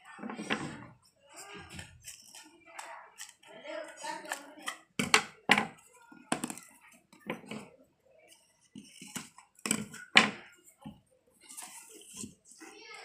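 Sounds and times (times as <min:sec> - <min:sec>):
paper tubes and scissors clicking: 0:01.3 - 0:05.6.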